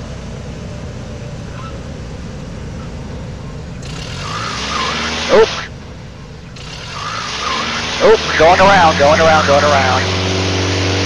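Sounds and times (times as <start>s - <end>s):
plane engine low rumble: 0.0s - 4.0s, 5.3s - 6.7s, 7.9s - 11.0s.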